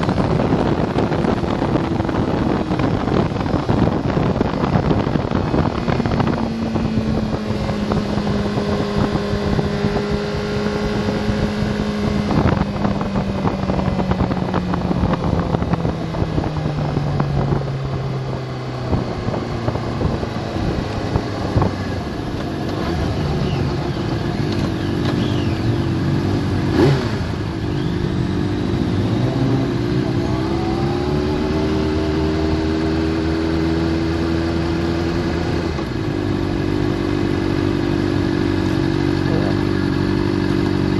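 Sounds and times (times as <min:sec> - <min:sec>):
wind rush: 0:00.0 - 0:25.0
motorcycle engine: 0:00.0 - 0:40.9.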